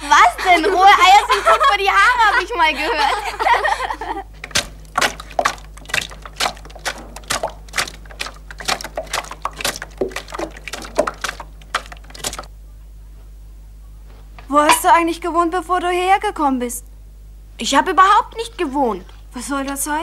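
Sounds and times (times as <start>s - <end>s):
wooden paddle beating batter: 4.3s - 12.5s.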